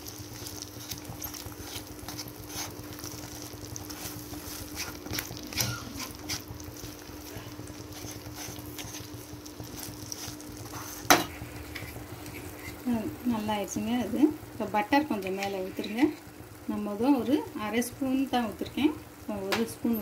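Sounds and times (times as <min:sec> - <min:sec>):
faint sizzle: 0:00.0 - 0:20.0
steady low hum: 0:00.0 - 0:20.0
spatula scraping a pan: 0:00.8 - 0:03.0, 0:03.9 - 0:06.9, 0:07.7 - 0:12.9.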